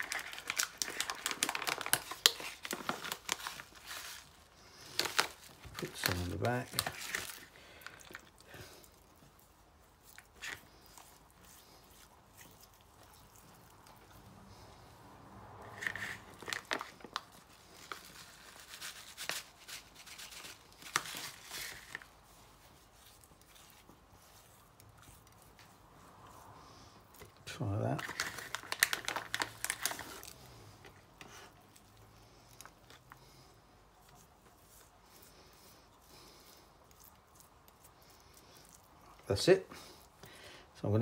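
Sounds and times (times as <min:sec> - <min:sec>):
hands rubbing raw chicken: 0:01.9 - 0:14.3, 0:15.8 - 0:27.9.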